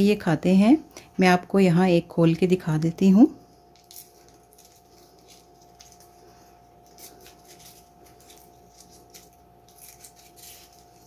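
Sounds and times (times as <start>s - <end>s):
faint steady hum: 0.0s - 11.0s
paper wrapper crinkling: 3.7s - 11.0s.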